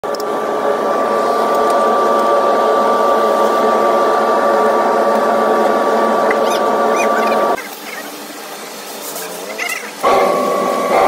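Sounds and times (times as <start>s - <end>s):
electric blower running with whine: 0.1s - 7.6s, 9.9s - 11.0s.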